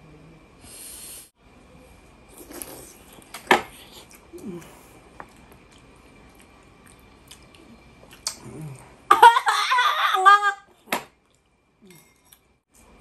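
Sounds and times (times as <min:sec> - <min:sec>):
people chewing wetly: 0:02.4 - 0:09.0.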